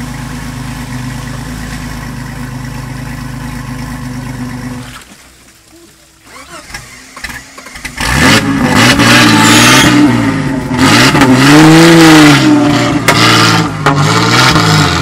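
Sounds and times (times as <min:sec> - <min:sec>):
off-road vehicle engine revving: 0:06.2 - 0:15.0.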